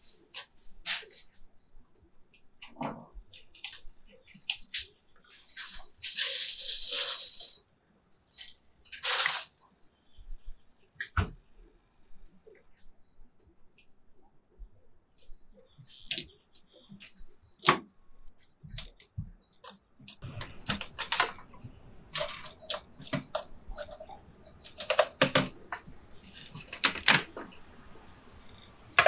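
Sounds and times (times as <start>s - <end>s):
small birds chirping: 0.0s - 29.0s
hard plastic clicks and clatter: 18.7s - 27.6s.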